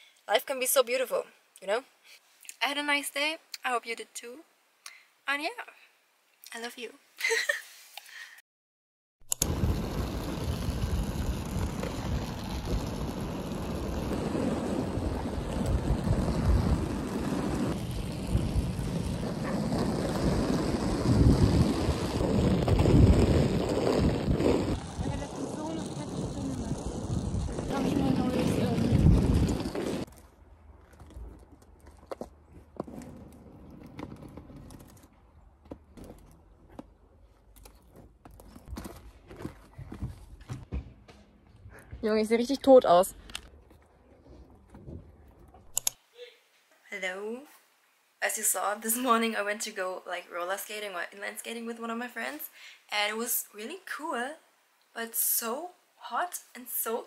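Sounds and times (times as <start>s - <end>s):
skate wheels rolling on asphalt: 9.3s - 40.8s
wind buffeting microphone: 9.4s - 30.1s.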